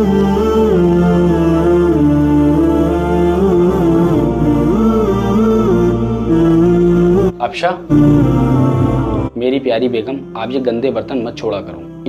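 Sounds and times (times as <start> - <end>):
low drone: 0.0 - 9.4
slow vocal melody: 0.0 - 12.0.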